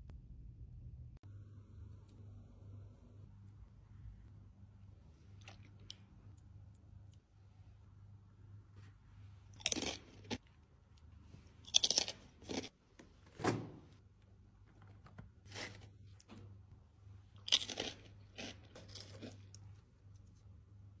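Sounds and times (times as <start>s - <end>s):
faint low hum: 0.0s - 21.0s
potato chips crunching: 9.5s - 10.5s, 11.6s - 12.8s, 17.4s - 19.7s.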